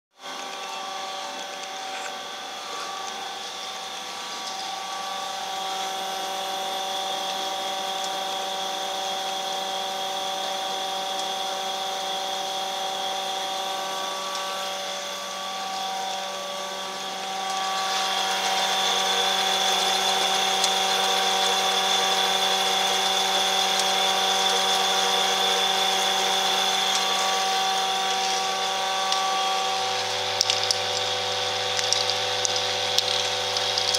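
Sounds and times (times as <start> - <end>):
capping machine humming and whining: 0.2 - 33.9.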